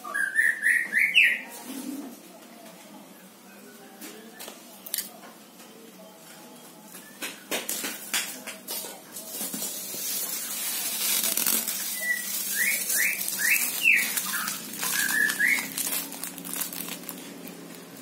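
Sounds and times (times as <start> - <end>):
rustling and fluttering: 9.1 - 18.0.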